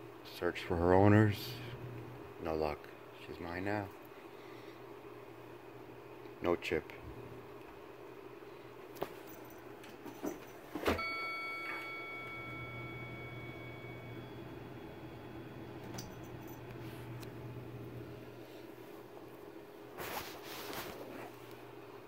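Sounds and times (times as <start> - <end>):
bell-like metallic ring: 11.0 - 14.4.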